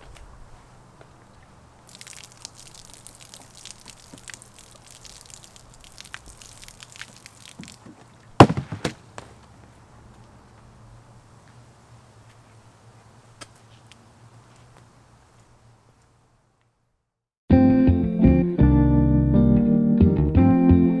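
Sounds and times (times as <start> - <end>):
liquid pouring and splashing: 1.8 - 8.4.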